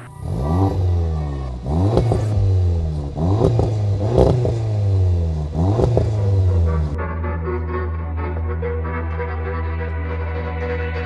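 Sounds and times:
car engine revving: 0:00.0 - 0:11.0
exhaust crackles: 0:00.0 - 0:11.0.

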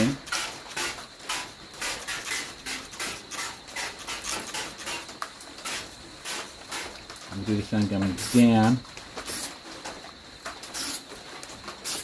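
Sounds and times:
spray paint can hissing in bursts: 0:00.0 - 0:07.0, 0:08.2 - 0:08.6, 0:09.2 - 0:09.6, 0:10.7 - 0:11.1, 0:11.8 - 0:12.0.

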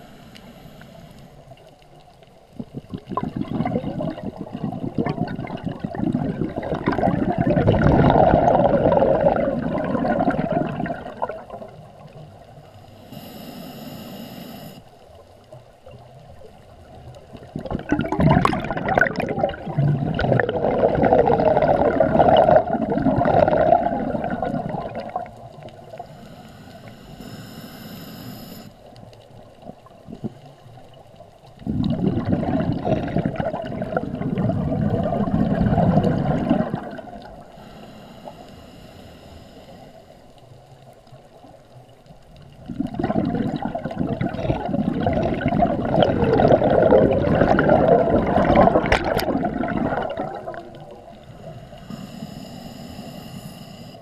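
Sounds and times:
regulator inhalation hiss: 0:00.0 - 0:01.4, 0:12.8 - 0:14.9, 0:25.9 - 0:28.8, 0:37.5 - 0:40.3, 0:51.3 - 0:54.0
gurgling exhaled bubbles: 0:02.5 - 0:12.5, 0:15.9 - 0:26.2, 0:29.5 - 0:37.5, 0:42.4 - 0:52.0.

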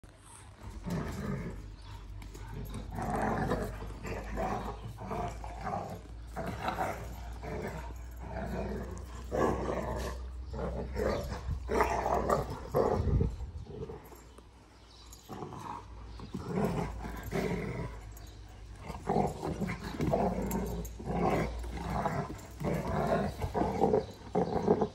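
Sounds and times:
puppies growling: 0:00.0 - 0:24.9.

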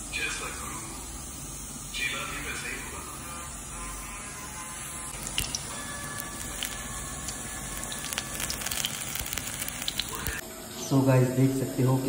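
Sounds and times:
food deep-frying in hot oil: 0:05.1 - 0:10.4
small crackling pops: 0:05.2 - 0:10.4.

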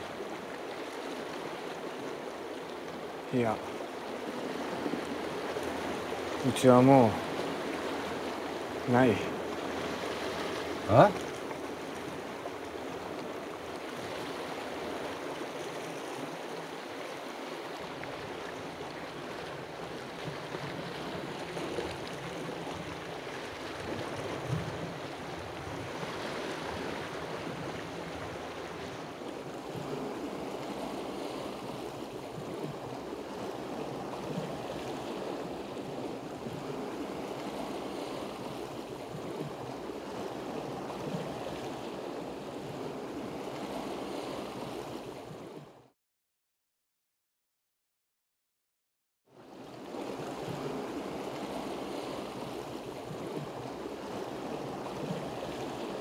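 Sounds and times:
sea waves on rocky shore: 0:00.0 - 0:45.9, 0:49.4 - 0:56.0.

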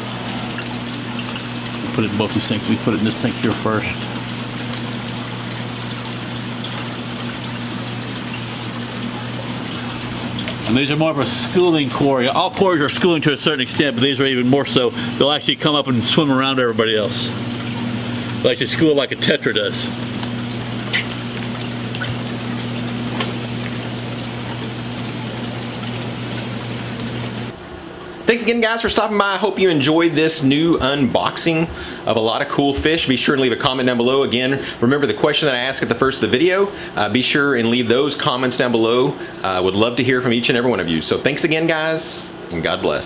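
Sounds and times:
running water trickling: 0:00.0 - 0:27.6
pump humming: 0:00.0 - 0:43.0.

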